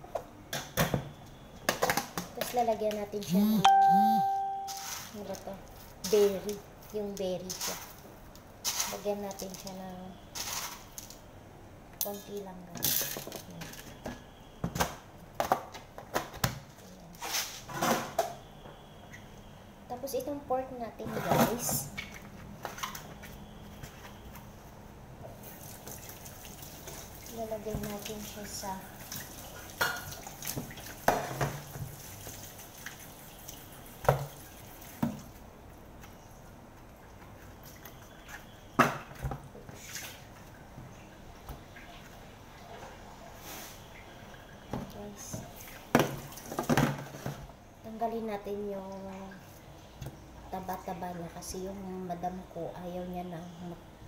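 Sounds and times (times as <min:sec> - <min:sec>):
rustling scrapes: 0:17.2 - 0:18.0
containers and pot clattering: 0:44.7 - 0:47.5.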